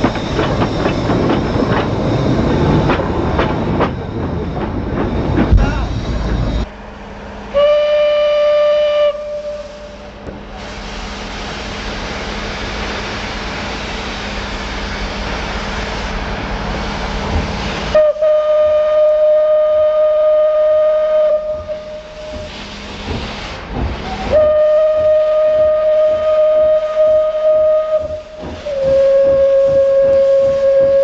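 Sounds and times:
steam locomotive whistle: 0:07.5 - 0:11.8, 0:17.8 - 0:22.7, 0:24.0 - 0:31.0
steam venting hiss: 0:09.3 - 0:31.0.

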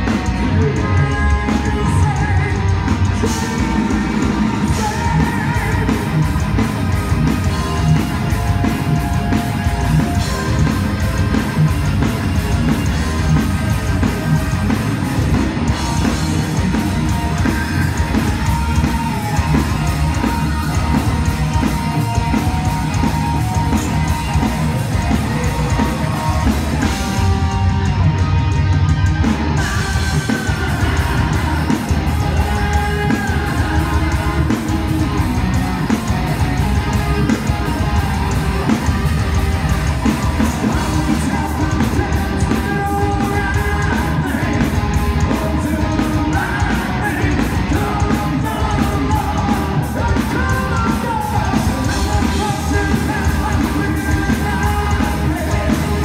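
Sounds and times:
singer's vocals: 0:00.0 - 0:06.6, 0:29.6 - 0:35.6, 0:40.1 - 0:56.0
bass: 0:00.0 - 0:56.0
distorted electric guitars: 0:00.0 - 0:56.0
drums: 0:00.0 - 0:56.0.

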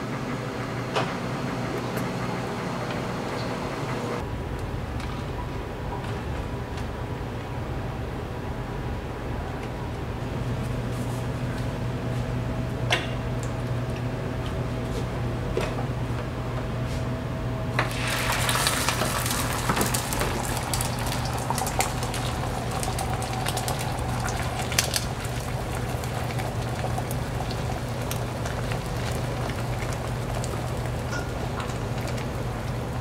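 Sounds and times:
low griddle hum: 0:00.0 - 0:33.0
food sizzling on griddle: 0:17.9 - 0:31.5.

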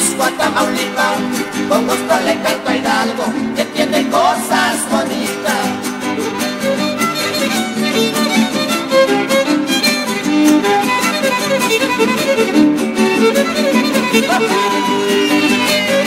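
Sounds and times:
rhythmic strumming: 0:00.0 - 0:16.0
violin melody: 0:04.8 - 0:16.0.

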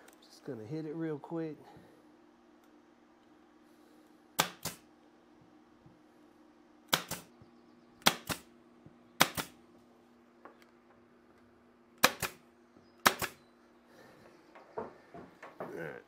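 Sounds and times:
nail gun shots: 0:04.4 - 0:04.9, 0:06.9 - 0:07.3, 0:08.0 - 0:08.5, 0:09.2 - 0:09.6, 0:12.0 - 0:12.4, 0:13.0 - 0:13.4.

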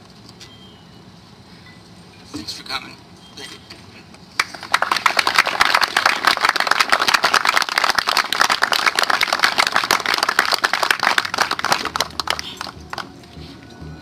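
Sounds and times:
audience applauding: 0:04.4 - 0:13.1.

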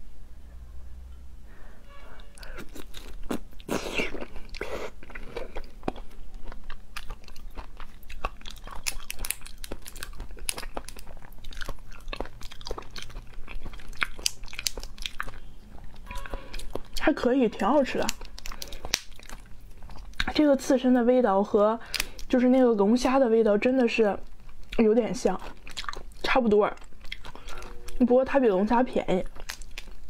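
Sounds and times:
wet biting and chewing: 0:02.4 - 0:17.0, 0:17.9 - 0:20.4, 0:24.5 - 0:28.0, 0:29.2 - 0:30.0
shell cracking and snapping: 0:08.2 - 0:11.0, 0:18.0 - 0:19.4, 0:29.4 - 0:30.0.

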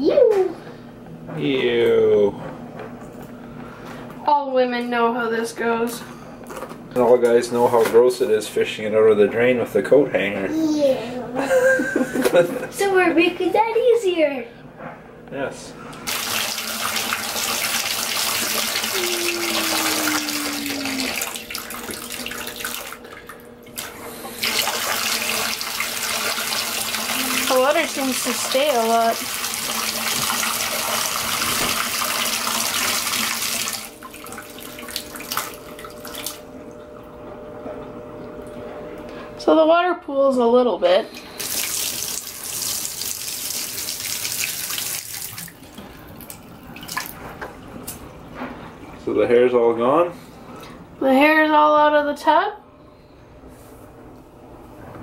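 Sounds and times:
tap water pouring into tub: 0:16.1 - 0:36.8, 0:41.2 - 0:47.6.

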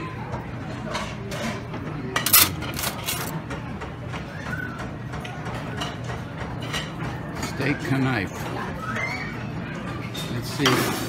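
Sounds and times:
low restaurant hum: 0:00.0 - 0:11.0
tableware clinks: 0:02.2 - 0:03.3.

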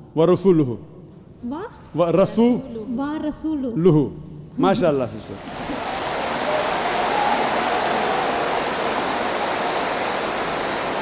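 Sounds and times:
audience applauding: 0:05.3 - 0:11.0
faint crowd voices: 0:05.3 - 0:11.0.

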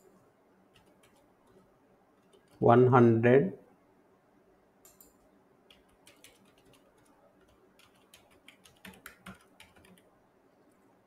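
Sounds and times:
computer keyboard typing: 0:00.7 - 0:01.6, 0:02.2 - 0:02.6, 0:04.8 - 0:10.1.

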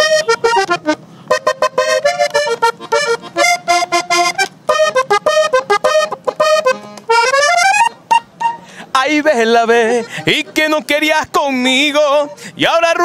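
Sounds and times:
button accordion melody: 0:00.0 - 0:09.0, 0:09.6 - 0:12.5.

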